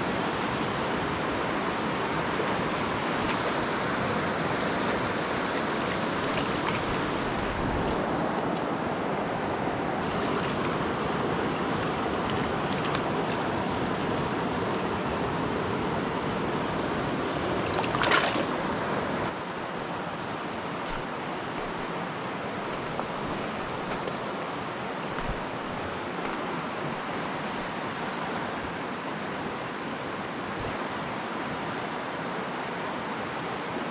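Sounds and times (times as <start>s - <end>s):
stream flowing over rocks: 0.0s - 33.9s
water splash: 4.6s - 7.6s, 12.2s - 13.5s, 17.6s - 18.7s.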